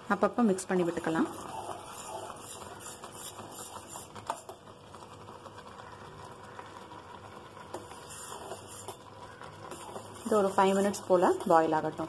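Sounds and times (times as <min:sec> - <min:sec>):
soft simmering hiss: 0:00.0 - 0:12.0
spoon clinking and scraping a pan: 0:07.6 - 0:11.7.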